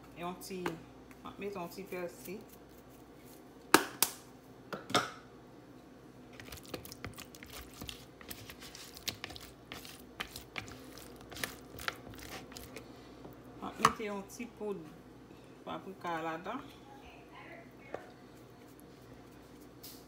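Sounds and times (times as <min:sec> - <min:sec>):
wet squishing of stirred shrimp: 0:06.3 - 0:13.0
spatula scraping plastic bowl: 0:06.4 - 0:12.8.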